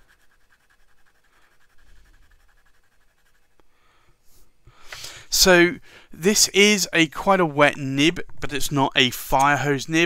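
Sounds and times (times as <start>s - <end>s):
pen nib scratching on paper: 0.0s - 3.6s.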